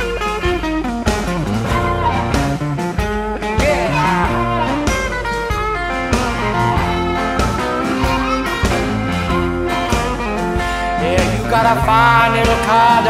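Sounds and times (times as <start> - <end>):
blues harmonica bending notes: 0.0 - 13.0
guitar strumming rhythm: 0.0 - 13.0.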